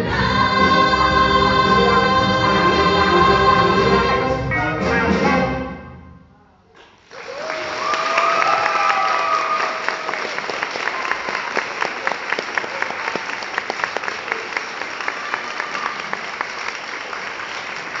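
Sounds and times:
audience applauding: 0:06.8 - 0:18.0.

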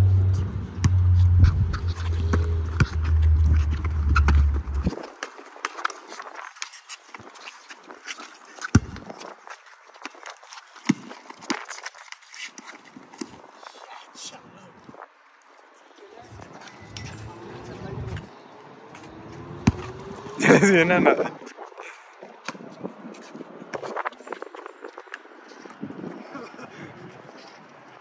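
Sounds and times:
music with deep bass line: 0:00.0 - 0:04.9
sneaker footsteps: 0:00.2 - 0:05.2
basketball bouncing on concrete: 0:00.8 - 0:05.0, 0:08.7 - 0:09.1, 0:19.6 - 0:19.9.

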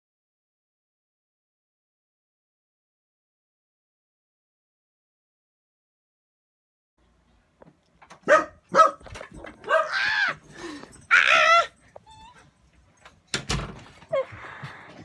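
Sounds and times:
dog barking: 0:08.2 - 0:10.4
dog whining: 0:09.5 - 0:12.6.

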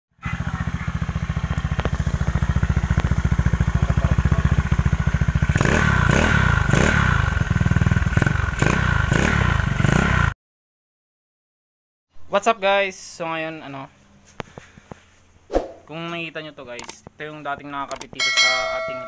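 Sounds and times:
scooter engine idling: 0:00.2 - 0:10.3
engine revving with high whine: 0:05.3 - 0:10.3.

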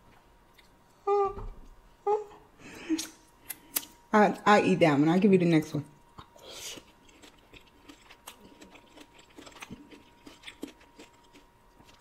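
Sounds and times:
wet mouth clicks and smacks: 0:03.0 - 0:04.0
chewing fruit: 0:06.1 - 0:12.0.

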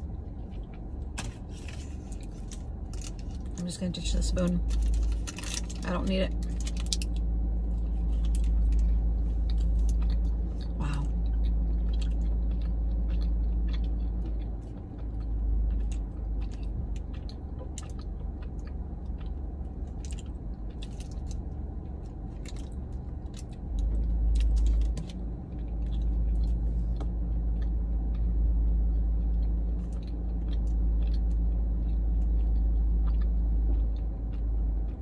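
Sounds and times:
steady low rumble: 0:00.0 - 0:35.0
person chewing with mouth clicks: 0:07.8 - 0:24.2, 0:29.2 - 0:35.0.

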